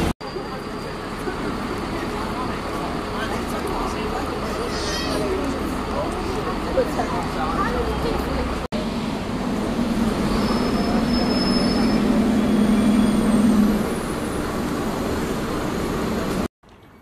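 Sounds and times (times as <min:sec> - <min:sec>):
bus engine humming: 0:00.0 - 0:16.5
faint high squeal: 0:10.3 - 0:13.6.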